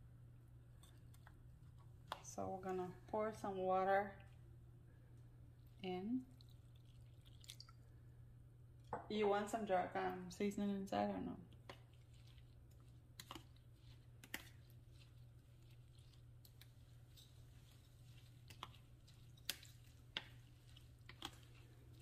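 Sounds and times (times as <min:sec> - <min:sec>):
low steady hum: 0:00.0 - 0:22.0
spoon stirring wet paste: 0:05.4 - 0:07.9, 0:11.3 - 0:22.0.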